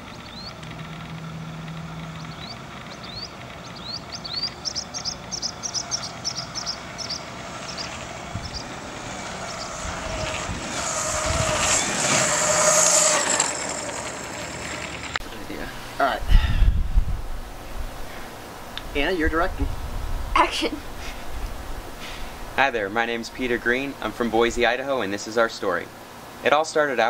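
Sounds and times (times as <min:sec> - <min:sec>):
electric motor whine: 0:00.0 - 0:15.2
wheels on asphalt: 0:00.0 - 0:16.0.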